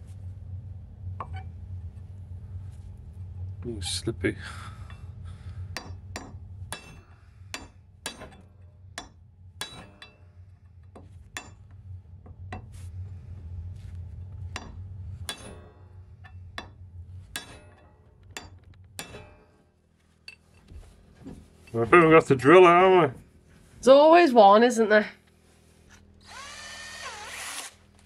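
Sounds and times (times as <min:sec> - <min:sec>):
hammer tapping steel punch: 0:05.7 - 0:10.3.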